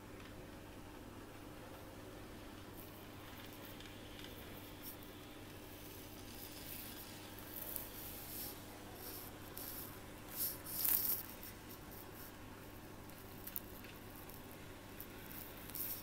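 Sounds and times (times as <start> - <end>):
faint electrical hum: 0.0 - 16.0
rubbing and brushing noises: 5.8 - 12.4.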